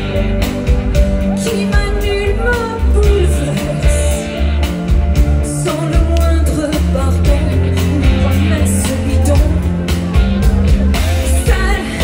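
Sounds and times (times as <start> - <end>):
bass guitar: 0.0 - 12.0
drums: 0.0 - 12.0
keyboards: 0.0 - 12.0
woman singing into microphone: 1.4 - 4.3, 5.4 - 10.0, 11.3 - 12.0.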